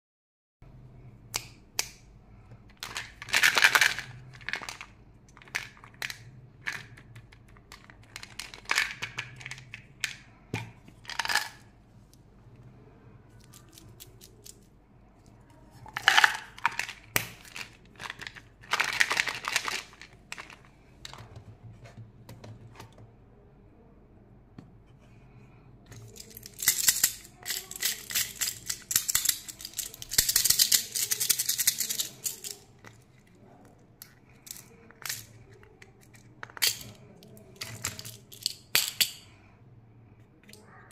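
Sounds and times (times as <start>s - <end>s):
candies rattling in plastic: 2.8s - 10.2s, 11.0s - 11.7s, 13.4s - 14.7s, 15.7s - 20.8s, 25.9s - 33.3s, 34.3s - 39.2s
plastic packaging crinkling: 15.9s - 20.7s.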